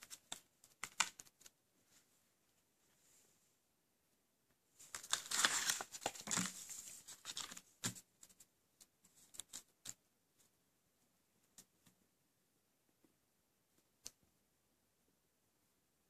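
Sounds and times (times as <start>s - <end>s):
paper rustling and crinkling: 4.8s - 8.5s.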